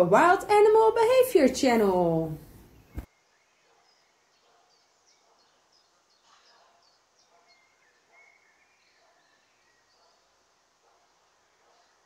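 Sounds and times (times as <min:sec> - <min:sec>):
distant birds chirping: 0:00.0 - 0:12.0.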